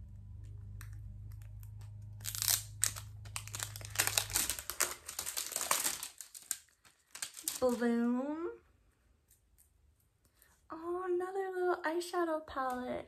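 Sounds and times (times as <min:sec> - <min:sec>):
plastic wrapping crinkling and tearing: 0:00.8 - 0:08.1.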